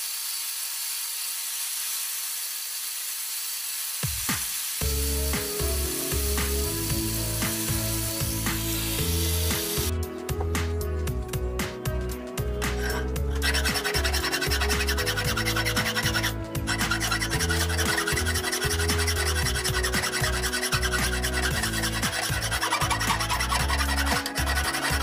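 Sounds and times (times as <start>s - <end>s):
background music with steady beat: 4.0s - 25.0s
file rasping on steel: 12.7s - 25.0s.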